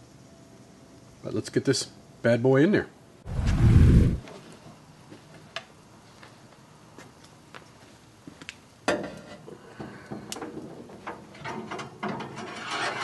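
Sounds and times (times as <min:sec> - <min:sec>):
wire rack scraping and clinking: 0:11.4 - 0:13.0.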